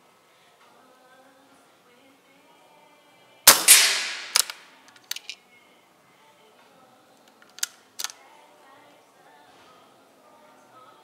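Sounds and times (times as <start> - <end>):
air rifle shot: 3.5 - 4.7.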